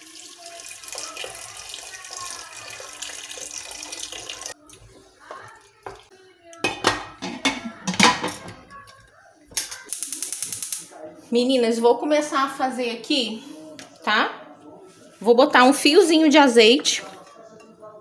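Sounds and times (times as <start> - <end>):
water pouring into a pot: 0.0 - 4.8
spoon stirring in a pot: 2.8 - 9.1
metal lid clattering: 6.6 - 8.5.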